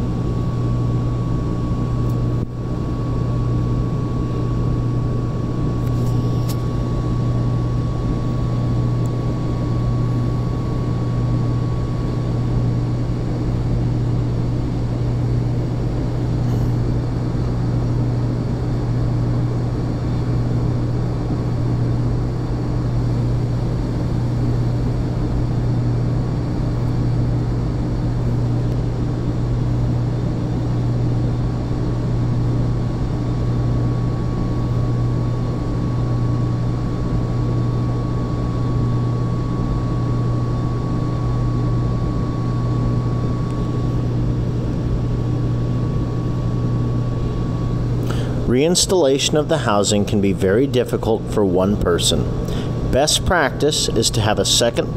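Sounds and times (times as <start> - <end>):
industrial machinery low hum: 0.0 - 54.9
faint high whine: 33.0 - 54.9.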